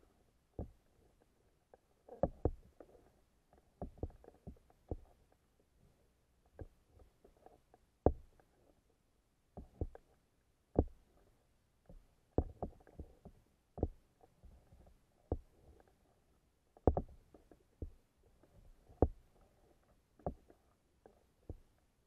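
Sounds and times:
underwater knocks and thumps: 0.6 - 0.8, 2.2 - 2.8, 3.8 - 5.1, 8.0 - 8.4, 9.6 - 10.0, 10.8 - 11.0, 11.9 - 14.0, 15.3 - 15.5, 16.8 - 18.0, 19.0 - 19.3, 20.2 - 20.5.

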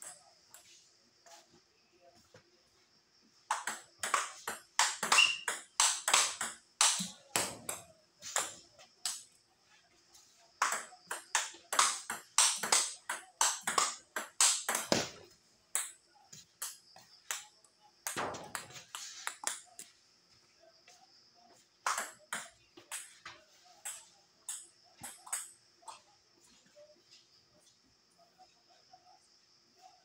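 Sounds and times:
table tennis ball clicking: 3.5 - 9.2, 10.6 - 15.0.

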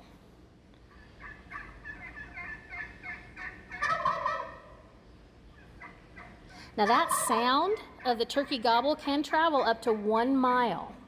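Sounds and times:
turkey gobbling: 0.9 - 4.9, 5.5 - 8.6.

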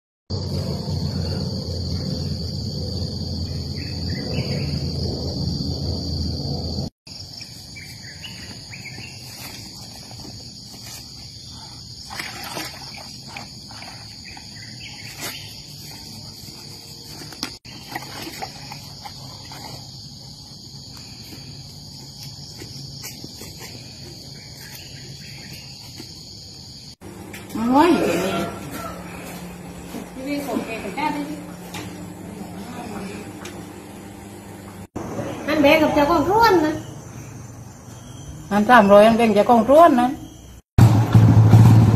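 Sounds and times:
low rumble: 0.3 - 6.9
insects droning: 0.3 - 40.7.

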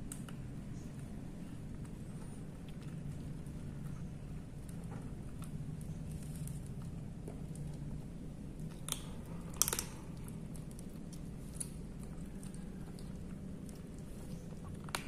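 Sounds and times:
kittens crunching dry kibble: 0.0 - 15.0
steady low hum: 0.0 - 15.0.

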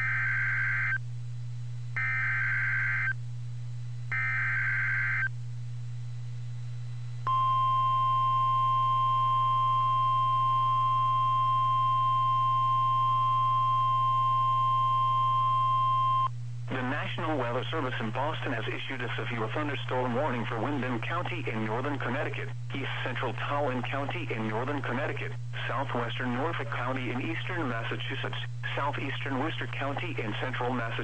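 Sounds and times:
steady warning alarm tone: 0.0 - 1.0, 2.0 - 3.2, 4.1 - 5.3, 7.3 - 16.3.

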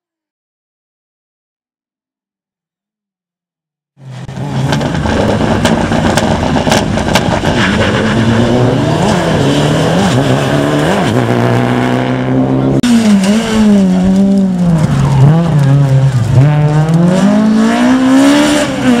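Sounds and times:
rally car engine revving: 4.0 - 19.0.

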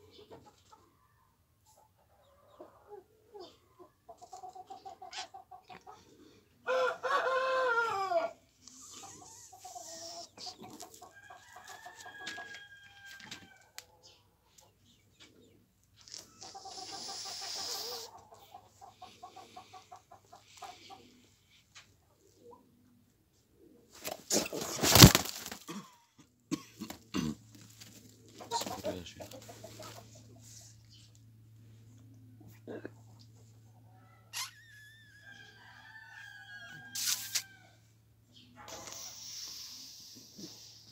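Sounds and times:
hen clucking and squawking: 1.6 - 25.8, 26.8 - 31.2
wing flapping: 24.0 - 25.7.

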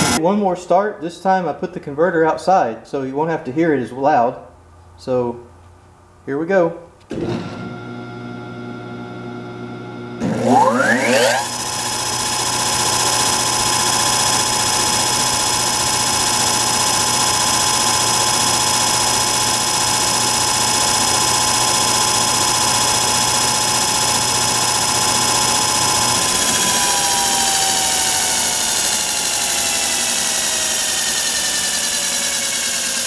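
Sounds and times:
electric motor whine: 0.0 - 0.2, 7.1 - 33.0.

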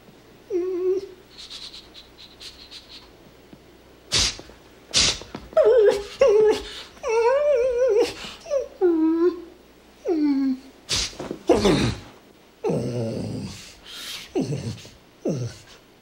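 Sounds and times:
dog whimpering and whining: 0.5 - 2.8, 5.6 - 10.7, 14.3 - 15.8
short breathy bursts: 4.1 - 5.3, 13.6 - 14.4.

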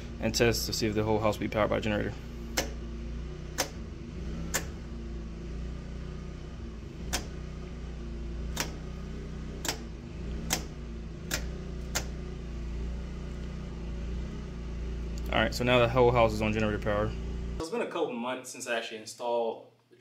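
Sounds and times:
steady low hum: 0.0 - 17.6
toggle switches clicking: 2.5 - 2.8, 3.6 - 3.8, 4.4 - 4.8, 7.1 - 7.4, 8.5 - 8.8, 9.6 - 12.2.

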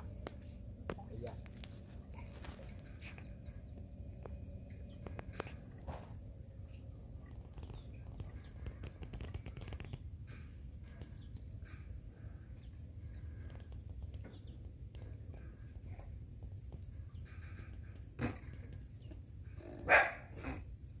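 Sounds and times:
low rumble: 0.0 - 17.9
small clicks and taps: 7.3 - 11.7.

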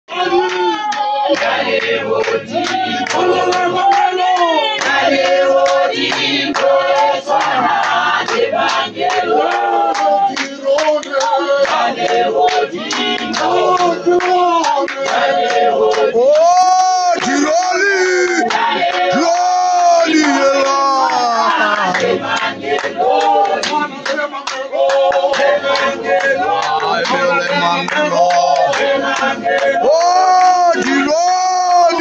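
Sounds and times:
group singing: 0.1 - 32.0
handclapping: 0.2 - 32.0
man singing: 16.1 - 22.1, 26.4 - 32.0.

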